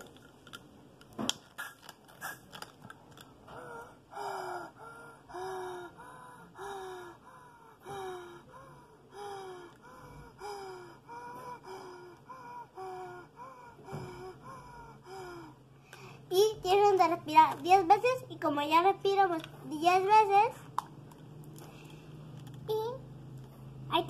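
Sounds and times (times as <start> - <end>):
child breathing through inhaler spacer: 1.5 - 2.7, 3.5 - 16.3, 21.6 - 22.4.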